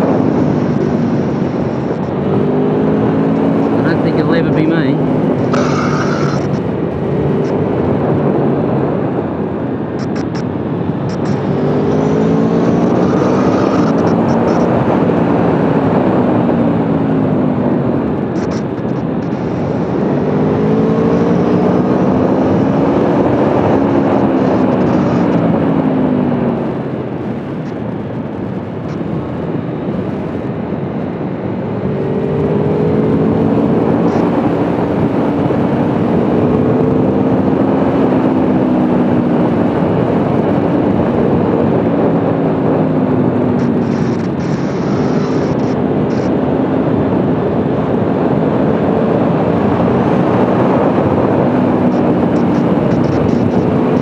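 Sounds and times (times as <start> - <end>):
wind rushing: 0.0 - 31.1
motorcycle engine revving: 0.0 - 54.0.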